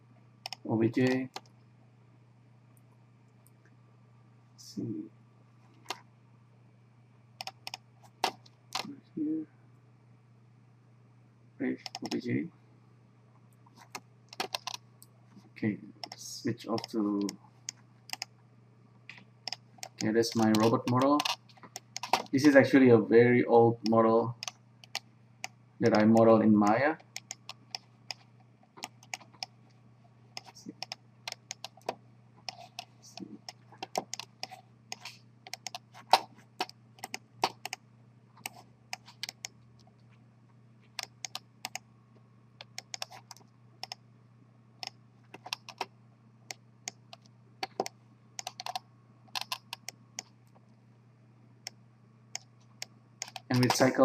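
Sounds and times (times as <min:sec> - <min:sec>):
faint low hum: 0:00.0 - 0:54.0
keyboard and mouse clicks: 0:00.4 - 0:01.5, 0:07.4 - 0:08.9, 0:11.8 - 0:12.2, 0:13.8 - 0:14.8, 0:16.0 - 0:16.2, 0:16.8 - 0:18.3, 0:19.1 - 0:22.4, 0:23.8 - 0:25.6, 0:27.0 - 0:29.6, 0:30.4 - 0:37.8, 0:38.4 - 0:39.9, 0:41.0 - 0:41.8, 0:42.6 - 0:44.0, 0:44.8 - 0:45.9, 0:46.5 - 0:50.6, 0:52.3 - 0:54.0.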